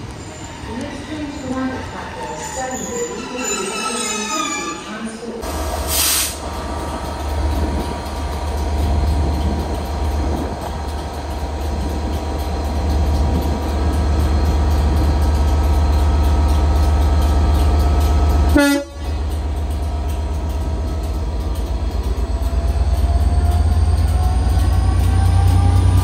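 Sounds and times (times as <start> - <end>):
locomotive engine humming: 0.0 - 26.0
locomotive rising whine: 0.0 - 26.0
locomotive horn toot: 18.5 - 19.2.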